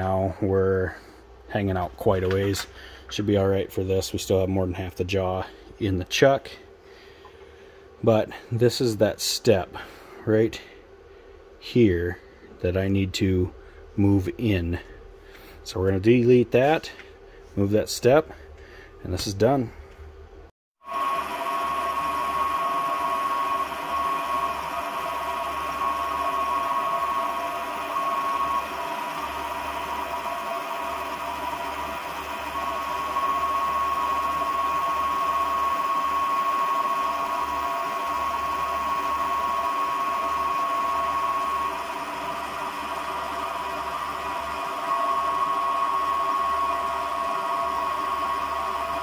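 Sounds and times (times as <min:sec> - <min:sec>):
steady high tone: 0:20.8 - 0:49.0
metal lathe cutting: 0:20.9 - 0:49.0.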